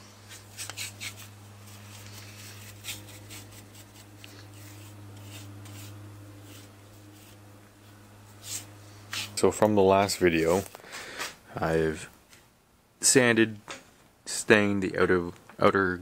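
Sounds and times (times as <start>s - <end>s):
brush scratching and swishing: 0.0s - 10.8s
steady low hum: 0.0s - 16.0s.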